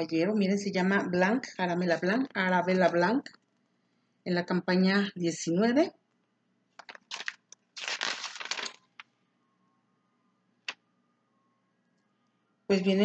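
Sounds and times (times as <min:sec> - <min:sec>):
paper rustling and crinkling: 0:06.8 - 0:09.1.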